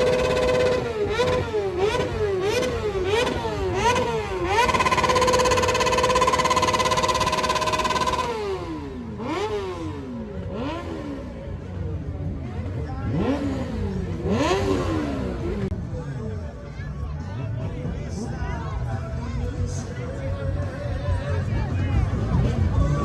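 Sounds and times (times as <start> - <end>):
motorcycle engine revving: 0.0 - 15.8.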